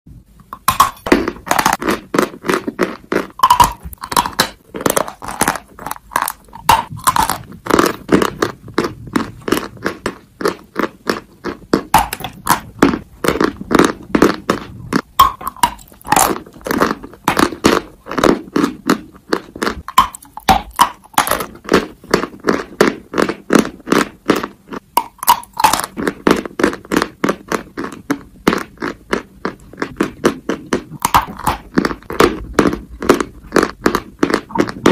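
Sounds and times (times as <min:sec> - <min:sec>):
chalk being chewed: 0:00.8 - 0:34.9.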